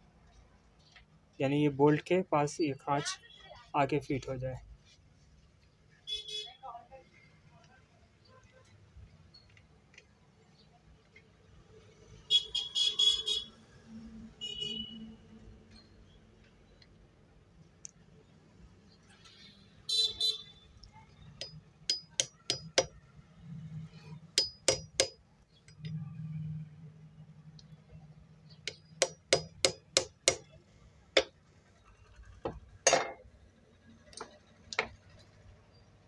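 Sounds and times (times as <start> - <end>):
hammer tapping metal: 21.4 - 23.0, 24.4 - 25.2, 28.6 - 30.6, 31.2 - 31.4, 32.5 - 33.2.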